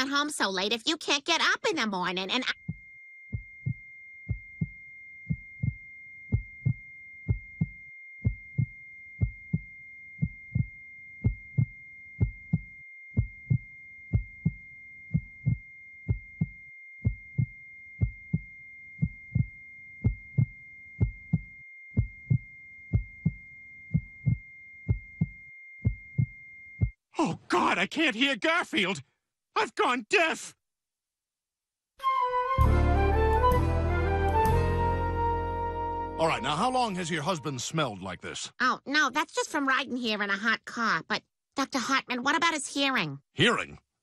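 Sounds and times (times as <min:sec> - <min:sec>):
high ringing tone: 0:02.3 - 0:27.0
heartbeat thumping: 0:02.5 - 0:27.0.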